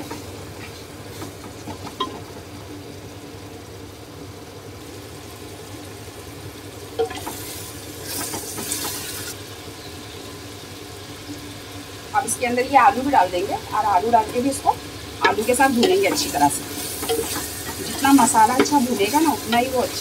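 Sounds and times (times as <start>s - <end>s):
food sizzling in a pot: 0.0s - 20.0s
spatula knocking against pot: 17.0s - 19.8s.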